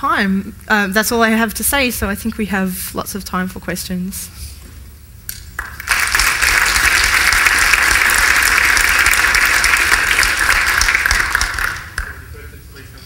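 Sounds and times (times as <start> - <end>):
audience applauding: 5.6 - 12.2.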